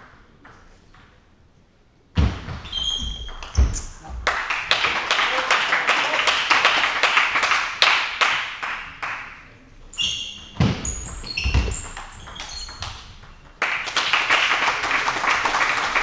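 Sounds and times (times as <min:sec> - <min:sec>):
spectators clapping: 0:03.4 - 0:09.5, 0:13.6 - 0:16.0
table tennis ball pinging: 0:10.1 - 0:13.6.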